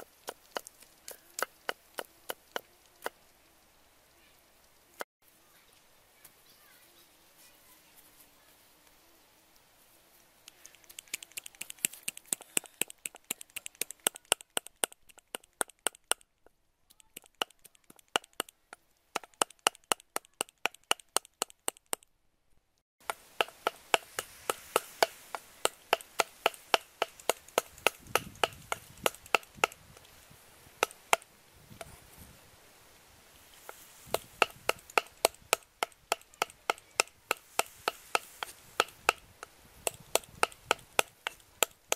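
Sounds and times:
cleaver chopping on wooden block: 0:11.1 - 0:16.2, 0:17.2 - 0:18.5, 0:19.2 - 0:22.0, 0:23.0 - 0:30.0, 0:30.8 - 0:31.3, 0:33.7 - 0:41.9.

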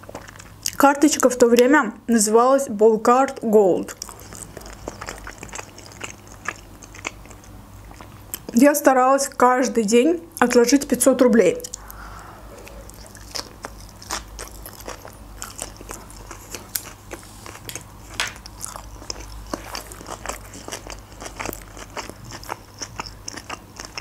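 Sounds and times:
close chewing crunches: 0:03.9 - 0:08.6, 0:12.6 - 0:24.0.

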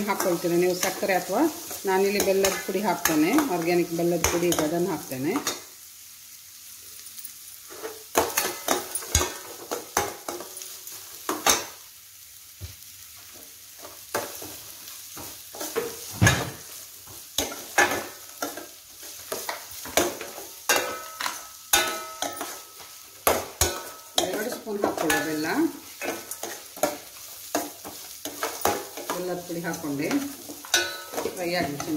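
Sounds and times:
oil sizzling: 0:00.0 - 0:31.9
spoon scraping metal pan: 0:17.4 - 0:31.9.

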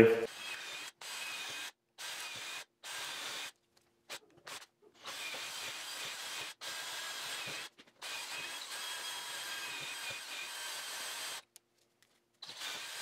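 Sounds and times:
cordless drill boring into rubber: 0:00.3 - 0:03.6, 0:04.5 - 0:11.4, 0:12.4 - 0:13.0.

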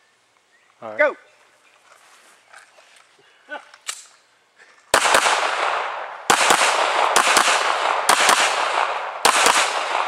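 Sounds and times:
handgun shots with echo: 0:05.0 - 0:10.0.

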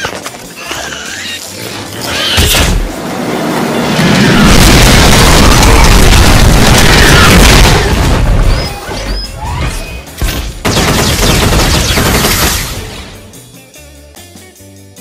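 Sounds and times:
explosion blasts: 0:03.8 - 0:08.8.

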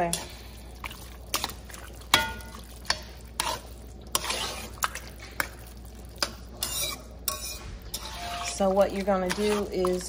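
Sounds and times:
wet squelching of dip: 0:00.1 - 0:06.9
metal spoon scraping a pot: 0:01.3 - 0:05.5, 0:06.2 - 0:10.0.

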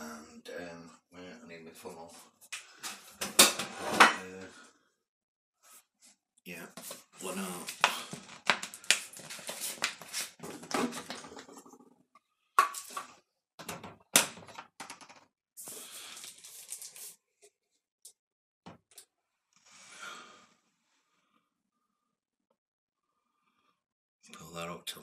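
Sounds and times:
plastic bottle rustling: 0:06.8 - 0:11.4, 0:15.6 - 0:17.2.

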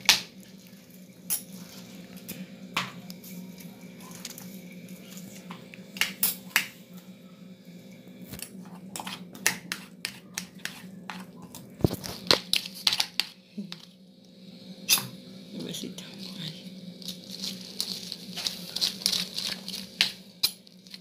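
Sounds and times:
cutlery scraping a plastic plate: 0:08.6 - 0:11.3.

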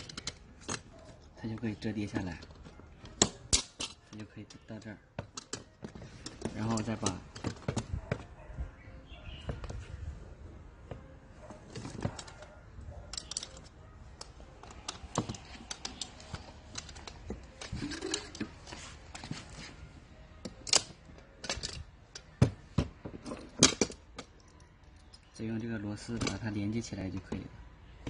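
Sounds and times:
metal bracket clicking and knocking: 0:00.0 - 0:08.3, 0:11.7 - 0:19.3, 0:20.4 - 0:25.4.

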